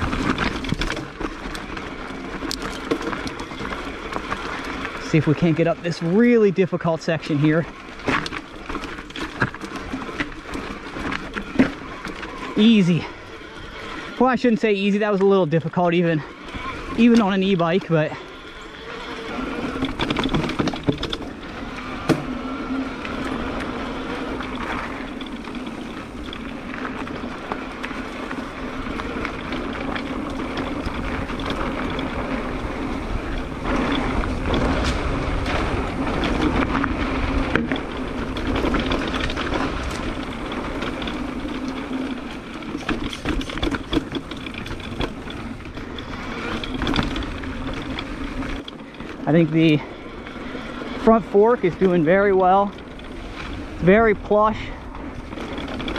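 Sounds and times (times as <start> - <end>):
bike rattling over rocks: 0.0 - 55.9
bike tyres rolling on dirt: 0.0 - 55.9
steady motor hum: 0.0 - 55.9.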